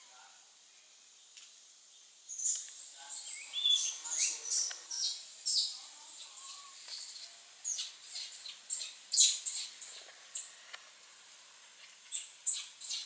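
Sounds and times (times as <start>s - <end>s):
faint hiss: 0.0s - 13.0s
animal chirps and squeals: 2.3s - 10.5s, 12.2s - 13.0s.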